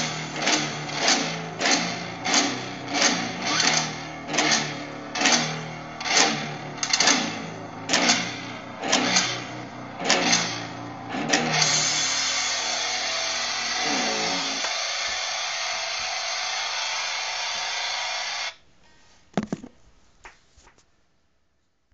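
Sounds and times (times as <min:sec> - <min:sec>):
distorted electric guitar chord: 0:00.0 - 0:17.7.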